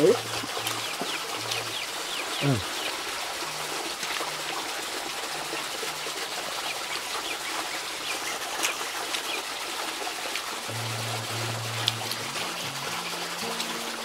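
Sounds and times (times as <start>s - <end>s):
small birds chirping: 0.0s - 3.4s, 6.1s - 9.8s
steady background hiss: 10.5s - 14.0s.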